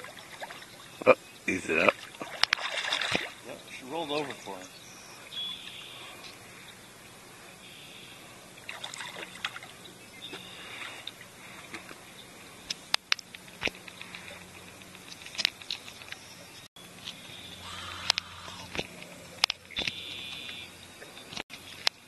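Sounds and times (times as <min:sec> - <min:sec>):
water splashing and dripping: 0:00.0 - 0:01.2, 0:01.8 - 0:04.6, 0:08.6 - 0:09.8.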